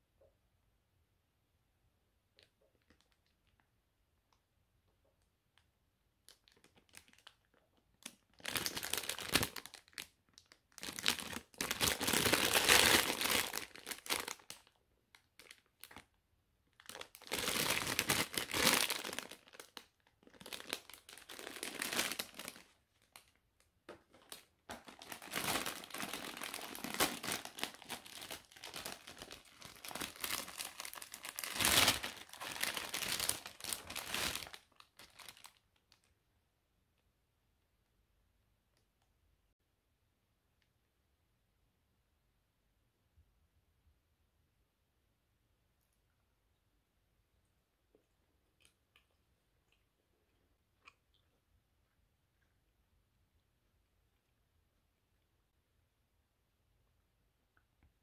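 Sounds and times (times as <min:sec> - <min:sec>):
cellophane bag crinkling: 0:06.3 - 0:36.1.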